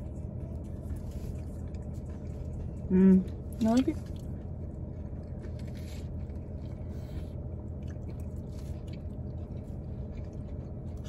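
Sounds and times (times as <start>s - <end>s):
chewing crispy food: 0.0s - 11.0s.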